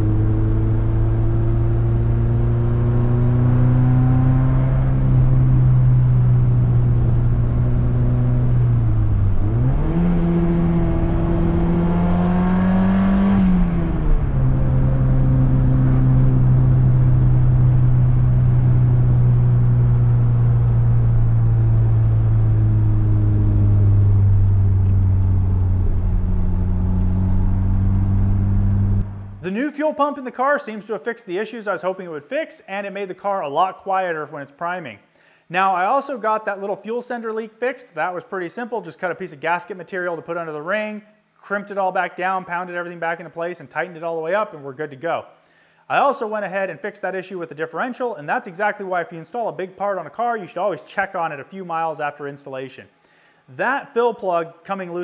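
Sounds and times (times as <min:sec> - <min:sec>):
car engine cruising and revving: 0:00.0 - 0:29.4.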